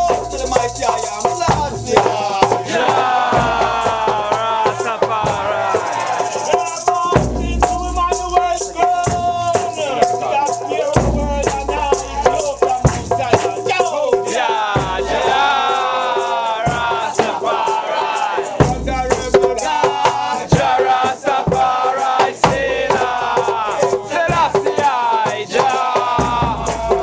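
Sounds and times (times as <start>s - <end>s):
rattles shaken: 0.0s - 26.2s
drumming: 0.0s - 27.0s
congregation chanting: 1.9s - 6.7s, 14.2s - 27.0s.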